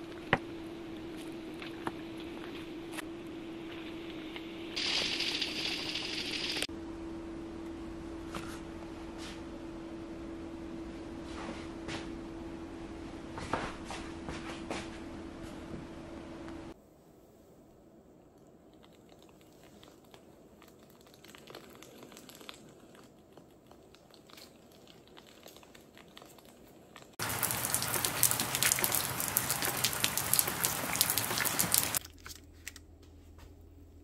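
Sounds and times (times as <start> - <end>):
sauce sizzling in a pan: 4.8 - 6.7.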